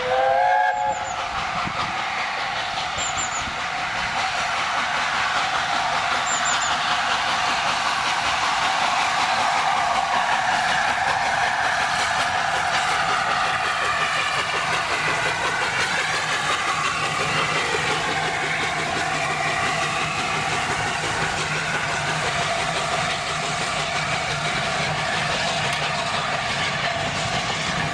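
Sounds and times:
steam locomotive exhaust: 0.0s - 27.9s
train wheels on rails: 0.0s - 27.9s.

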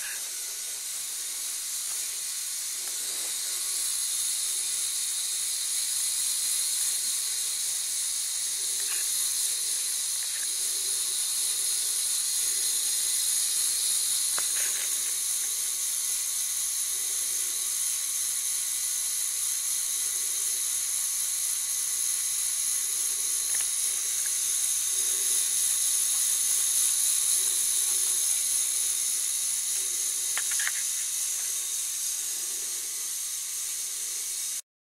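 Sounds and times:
toy motor and gears whining: 0.0s - 34.6s
sharp clicks: 29.7s - 31.6s.

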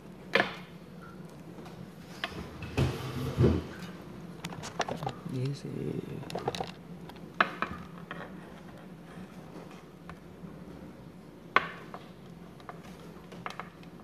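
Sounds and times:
low steady hum: 0.0s - 14.0s
cable and plug being handled: 6.2s - 7.2s.

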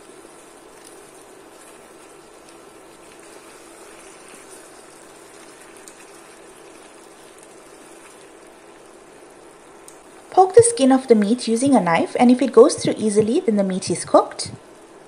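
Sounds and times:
curry bubbling in a pot: 0.0s - 11.5s
wooden spoon stirring: 0.0s - 13.4s.

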